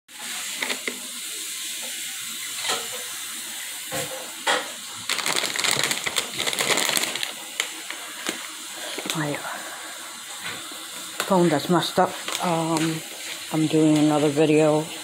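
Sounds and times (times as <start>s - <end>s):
crinkly plastic chip bag: 0.1s - 1.4s, 3.9s - 9.6s, 10.3s - 14.6s.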